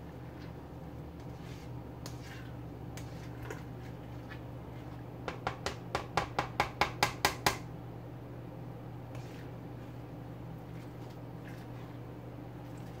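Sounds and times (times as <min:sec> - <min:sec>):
spoon scraping metal pot: 0:01.2 - 0:05.0
spoon knocking against pot: 0:05.3 - 0:07.6.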